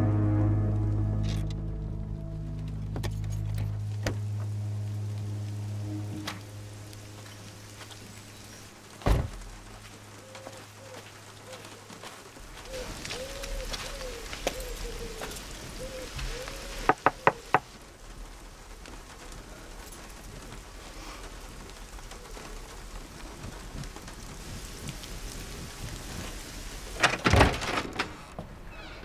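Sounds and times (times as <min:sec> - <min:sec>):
steady hiss: 0:03.8 - 0:29.0
heavy thuds: 0:09.0 - 0:09.6.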